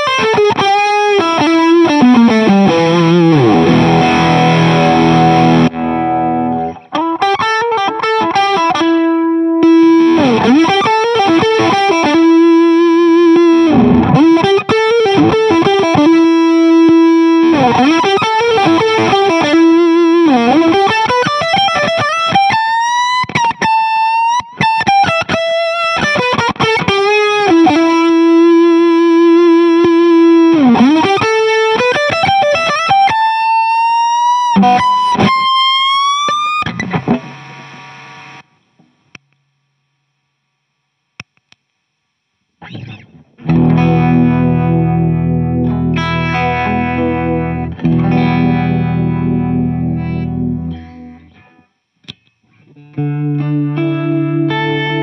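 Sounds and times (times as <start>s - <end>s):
fuzzy electric guitar lead notes: 0.0s - 39.2s, 42.6s - 55.0s.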